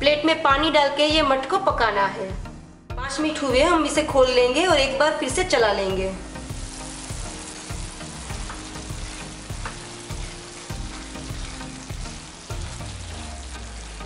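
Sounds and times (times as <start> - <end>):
beans sizzling in a pan: 5.9 - 14.0.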